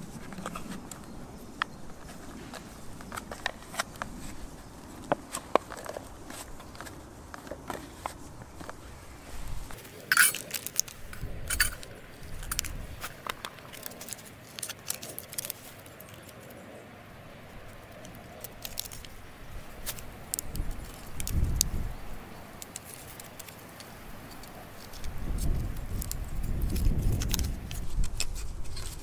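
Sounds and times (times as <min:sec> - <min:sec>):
metal clicks and clinks: 0:10.0 - 0:16.4.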